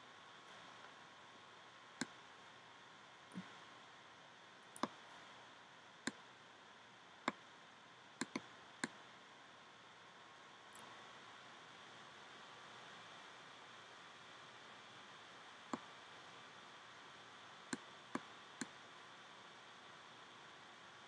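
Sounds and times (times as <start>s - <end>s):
mouse button clicks: 8.2s - 9.0s.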